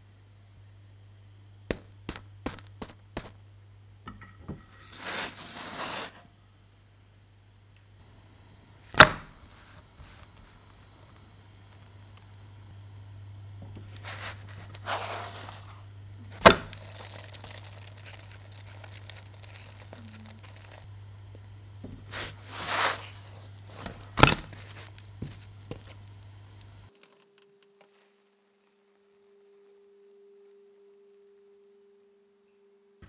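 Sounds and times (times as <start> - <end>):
low steady hum: 0.0 - 33.0
spatula scraping in frying pan: 4.6 - 6.2.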